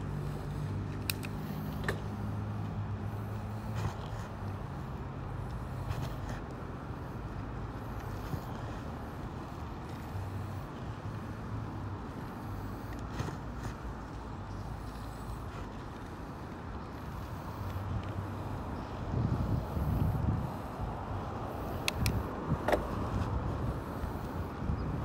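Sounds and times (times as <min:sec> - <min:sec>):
tyre noise on pavement: 0:00.0 - 0:25.0
wind rumble: 0:15.7 - 0:25.0.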